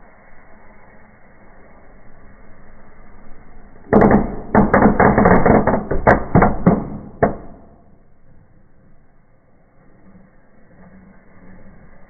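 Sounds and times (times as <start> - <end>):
firework hissing: 0.0 - 3.9, 8.2 - 12.0
firework bangs and crackles: 3.9 - 7.6.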